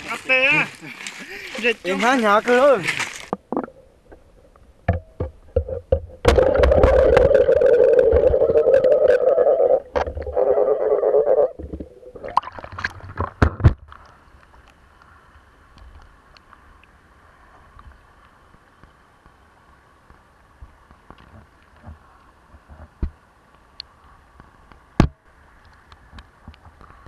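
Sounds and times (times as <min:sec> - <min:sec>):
sharp clicks and knocks: 0:04.8 - 0:07.3
underwater rushing and gurgling: 0:06.2 - 0:13.4.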